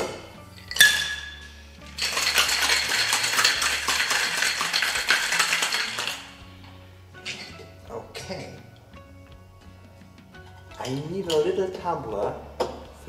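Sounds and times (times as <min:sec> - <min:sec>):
metal shaker tin clinking: 0:00.0 - 0:06.5, 0:07.2 - 0:08.5, 0:10.4 - 0:11.8
ice cubes rattling in shaker: 0:00.6 - 0:06.4.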